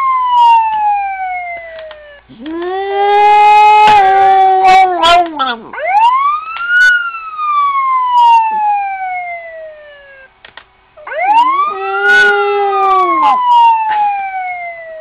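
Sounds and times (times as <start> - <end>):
siren wailing: 0.0 - 10.3, 11.0 - 15.0
puppy howling: 1.8 - 6.2, 6.9 - 9.9, 11.0 - 15.0.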